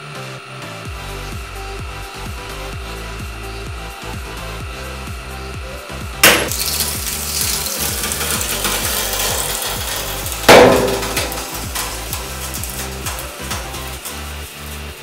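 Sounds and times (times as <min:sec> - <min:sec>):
glass lid shattering: 0:06.2 - 0:14.3
breaking glass crackling: 0:06.2 - 0:15.0.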